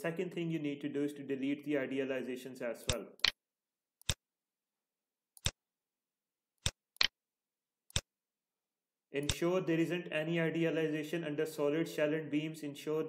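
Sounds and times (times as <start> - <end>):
computer mouse clicks: 4.0 - 4.2, 5.4 - 5.6, 6.6 - 7.1, 7.9 - 8.1.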